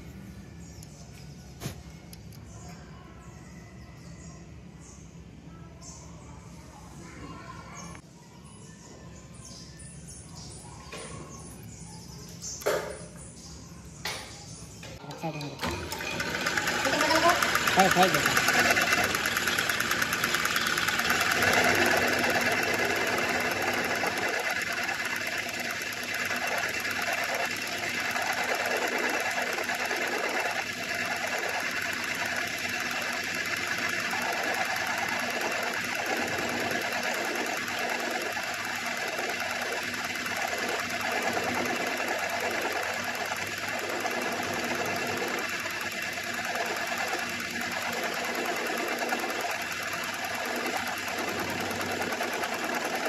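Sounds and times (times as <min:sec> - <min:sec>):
metal lathe humming: 0:15.6 - 0:53.0.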